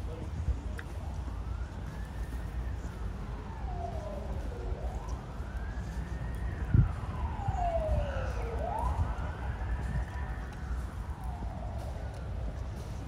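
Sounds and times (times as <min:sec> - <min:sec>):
siren wailing: 0:01.0 - 0:13.0.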